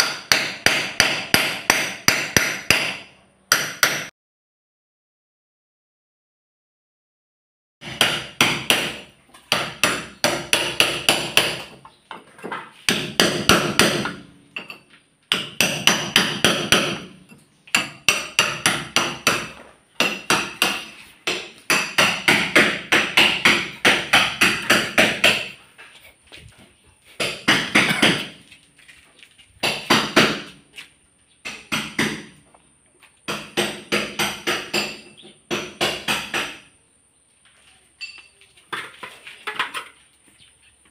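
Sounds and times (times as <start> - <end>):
hammer striking: 0.0 - 4.1, 7.8 - 11.8, 12.9 - 25.6, 27.2 - 28.4, 31.4 - 32.3, 33.3 - 36.7.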